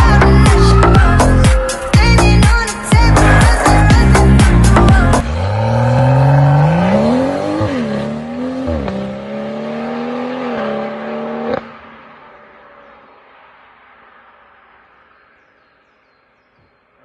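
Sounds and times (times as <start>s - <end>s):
car exhaust accelerating: 3.0s - 12.5s.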